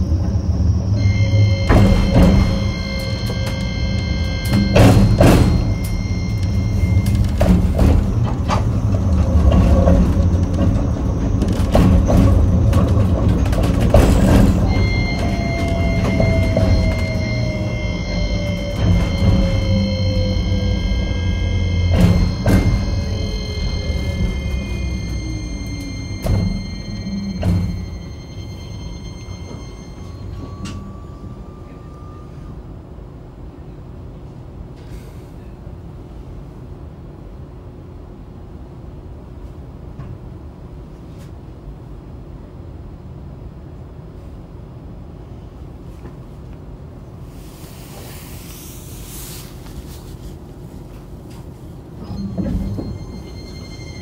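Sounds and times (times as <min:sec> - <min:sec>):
tram motor whine: 0:00.0 - 0:34.1, 0:50.6 - 0:54.0
tram wheels rumbling: 0:00.0 - 0:54.0
brief hiss: 0:47.4 - 0:50.1.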